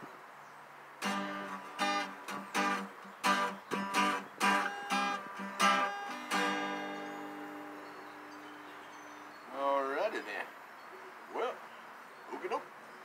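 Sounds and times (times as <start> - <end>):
acoustic guitar strumming: 1.0 - 9.5.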